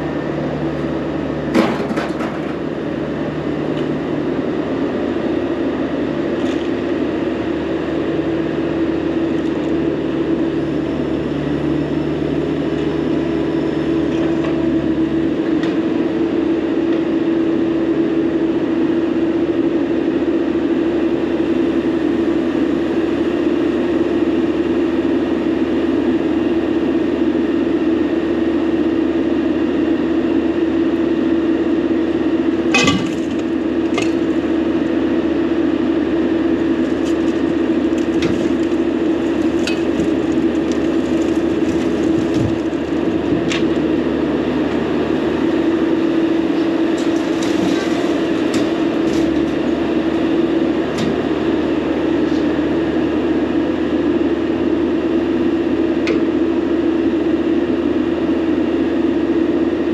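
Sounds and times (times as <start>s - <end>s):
engine and hydraulic hum: 0.0s - 59.9s
metal clank: 32.7s - 33.4s.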